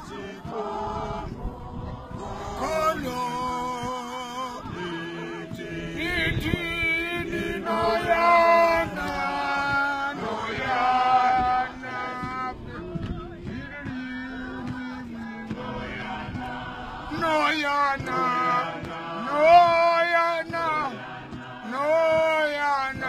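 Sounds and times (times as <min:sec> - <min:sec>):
group singing unaccompanied: 0:00.0 - 0:23.0.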